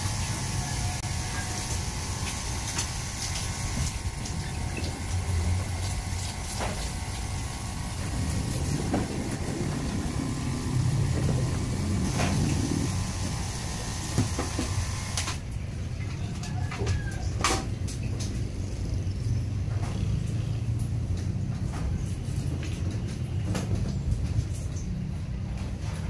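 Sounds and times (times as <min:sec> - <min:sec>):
shower water splashing into a sink: 0:00.0 - 0:15.4
low rumble: 0:07.0 - 0:13.7.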